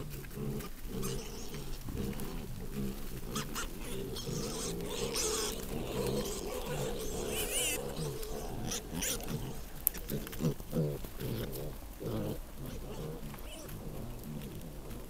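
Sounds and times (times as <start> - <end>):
wild boar grunting: 0.0 - 15.0.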